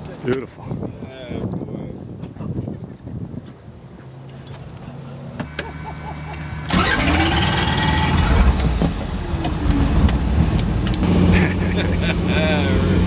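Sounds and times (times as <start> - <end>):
helicopter engine starting up: 5.5 - 9.8.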